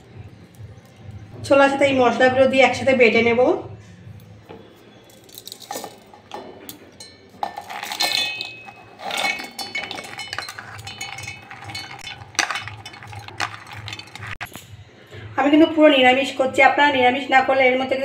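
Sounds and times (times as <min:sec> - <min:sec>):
chickpeas clinking in steel jar: 0:05.1 - 0:06.2, 0:07.0 - 0:14.7.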